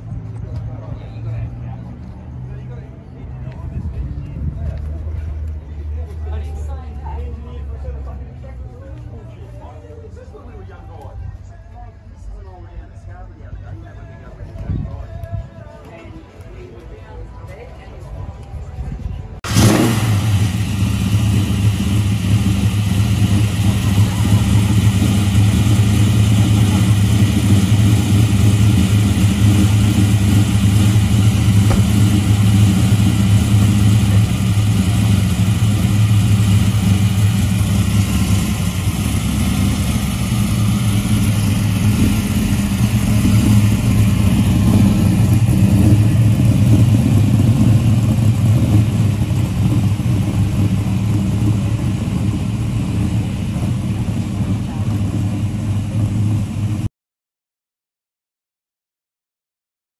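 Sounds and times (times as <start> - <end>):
car engine running: 19.5 - 56.9.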